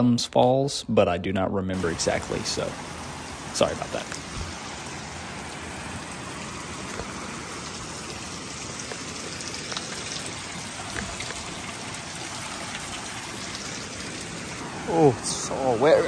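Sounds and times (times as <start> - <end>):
water dripping and splashing on rock: 1.8 - 14.7.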